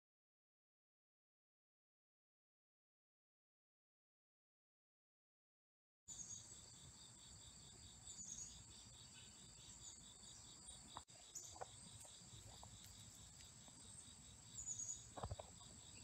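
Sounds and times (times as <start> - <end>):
insects chorus with pulsing trill: 6.1 - 16.0.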